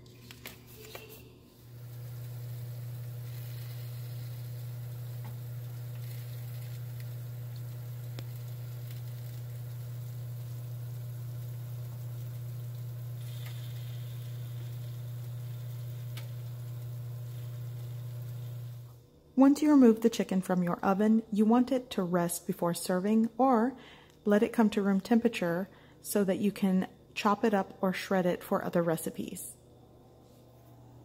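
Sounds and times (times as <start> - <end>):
oven humming: 0.2 - 19.0
chicken sizzling: 1.6 - 19.0.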